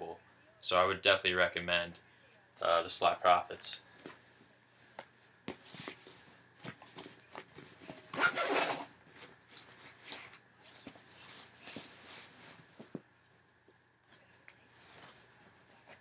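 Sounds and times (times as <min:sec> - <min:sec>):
fabric bag rustling: 0:05.6 - 0:13.0.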